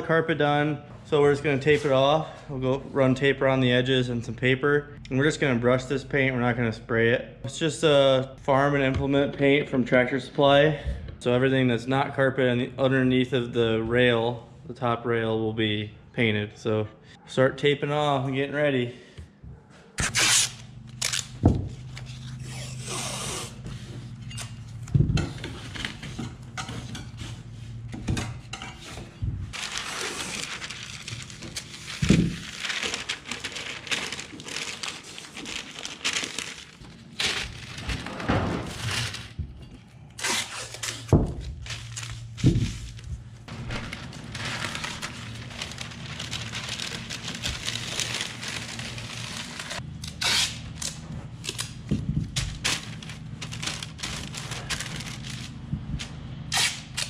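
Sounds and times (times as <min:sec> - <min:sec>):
paper crinkling and rustling: 0:28.9 - 0:39.4, 0:40.6 - 0:57.0.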